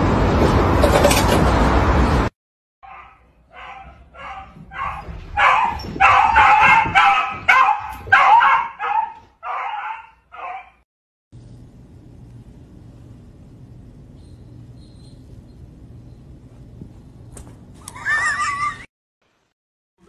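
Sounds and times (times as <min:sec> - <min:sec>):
dog yelping and whining: 0:02.9 - 0:10.7.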